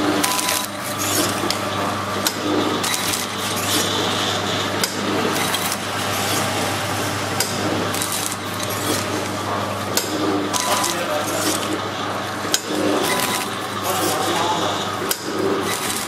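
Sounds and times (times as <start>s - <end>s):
light machine clatter: 0.0s - 4.2s, 4.8s - 11.8s, 12.5s - 16.0s
motor hum: 0.0s - 16.0s
sharp mechanical clicks: 2.2s - 3.9s, 7.4s - 11.8s.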